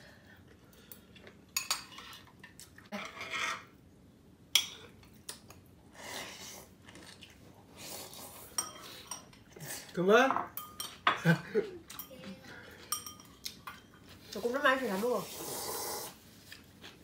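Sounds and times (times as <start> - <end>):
utensils clinking against bowls: 8.5 - 9.5, 10.2 - 14.6
noodle slurp: 15.3 - 16.2.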